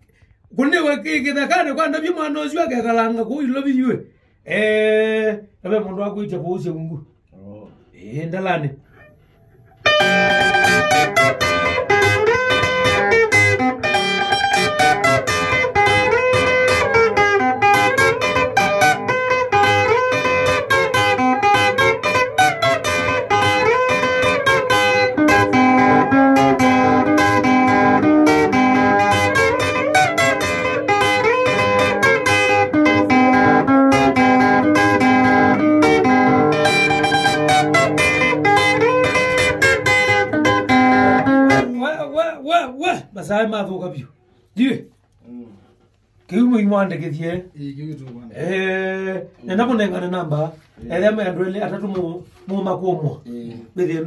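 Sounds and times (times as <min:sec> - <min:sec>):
plucked guitar lines: 0:09.7 - 0:42.0.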